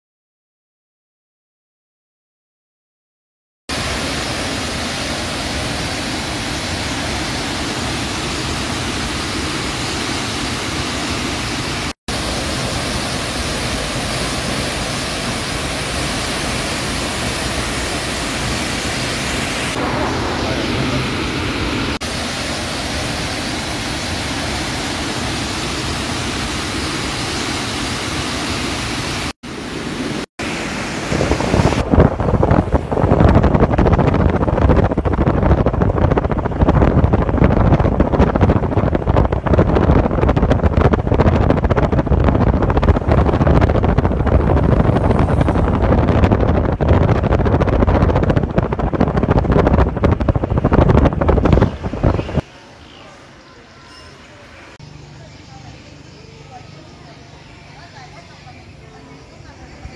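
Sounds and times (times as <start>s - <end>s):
waterfall rushing: 3.7s - 33.6s, 50.6s - 54.9s
wind buffeting microphone: 30.8s - 52.5s.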